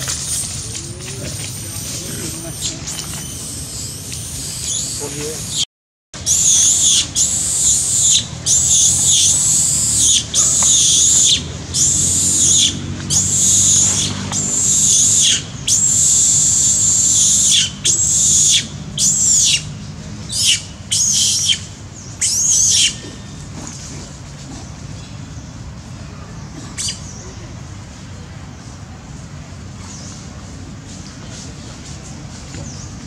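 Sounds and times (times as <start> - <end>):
monkey screaming: 6.2 - 19.6, 20.3 - 23.3.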